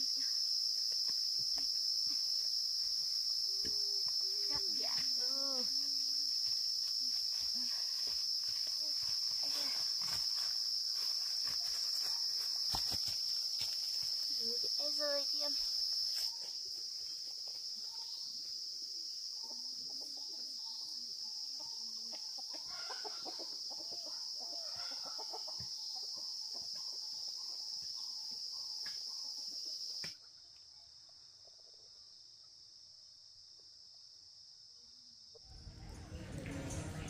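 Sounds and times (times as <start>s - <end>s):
high-pitched insect chorus: 0.0s - 35.5s
chickens clucking: 19.4s - 28.1s.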